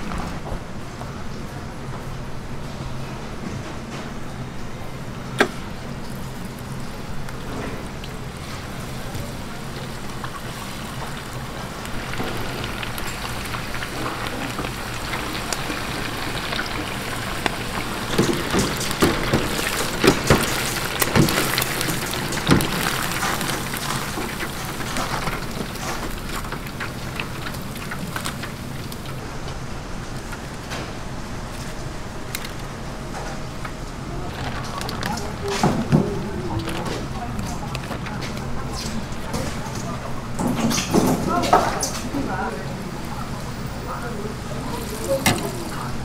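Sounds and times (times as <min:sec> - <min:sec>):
sharp crackles and knocks: 0:05.3 - 0:42.0
food sizzling in hot oil: 0:08.2 - 0:29.2.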